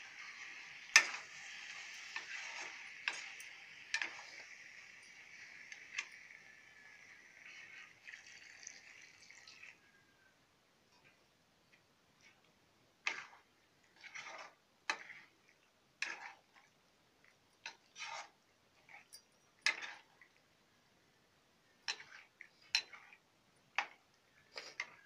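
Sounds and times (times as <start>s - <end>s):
metal spatula scraping wok: 0.0s - 9.7s, 13.0s - 16.5s, 17.7s - 20.2s, 21.8s - 23.2s, 23.8s - 25.0s.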